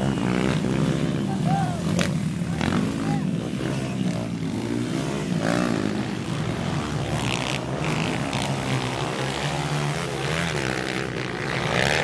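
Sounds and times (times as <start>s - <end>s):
dirt bike engines revving: 0.0s - 12.0s.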